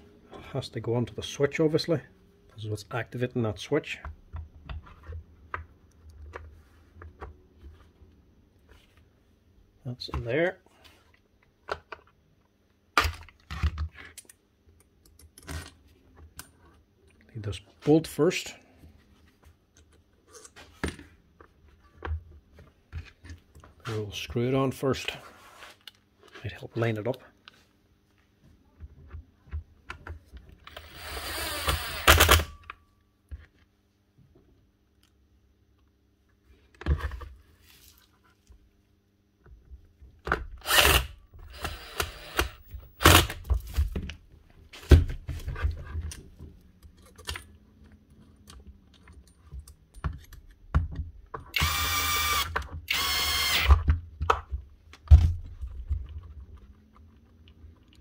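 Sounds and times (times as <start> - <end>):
power screwdriver running: 30.7 - 32.5, 40.6 - 43.4, 51.6 - 53.8
clicks and knocks of handled parts: 45.8 - 51.6.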